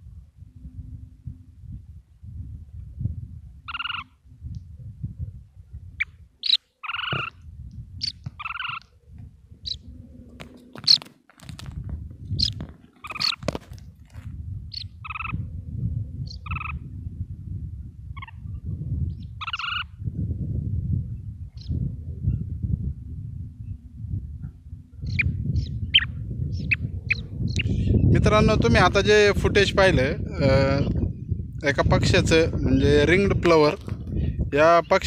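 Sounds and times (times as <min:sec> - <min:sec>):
wind rumble on microphone: 0:00.0 - 0:35.0
plover calling: 0:03.6 - 0:04.2, 0:06.0 - 0:07.4, 0:08.0 - 0:11.1, 0:12.4 - 0:13.6, 0:14.7 - 0:15.5, 0:16.2 - 0:17.0, 0:18.1 - 0:20.0, 0:24.4 - 0:28.0.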